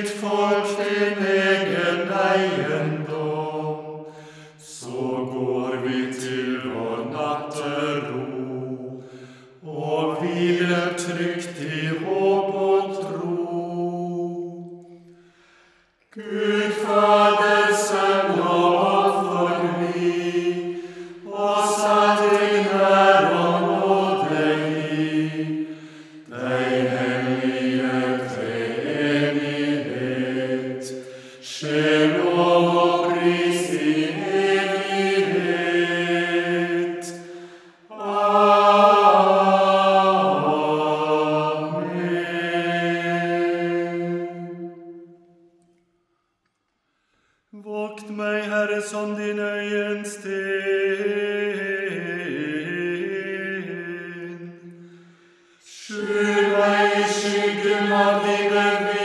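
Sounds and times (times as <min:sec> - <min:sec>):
person singing a hymn: 0:00.0 - 0:15.0, 0:16.1 - 0:45.2, 0:47.6 - 0:54.9, 0:55.6 - 0:59.0
singer breathing: 0:04.0 - 0:04.6, 0:09.0 - 0:09.6, 0:14.8 - 0:16.1, 0:20.7 - 0:21.3, 0:25.6 - 0:26.3, 0:31.0 - 0:31.5, 0:37.2 - 0:37.9, 0:46.8 - 0:47.6, 0:54.7 - 0:55.7.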